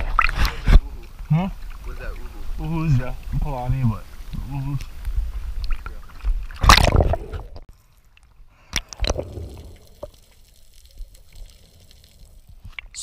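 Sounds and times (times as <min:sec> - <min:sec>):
water splashing and gurgling: 0:00.0 - 0:00.9, 0:04.3 - 0:13.0.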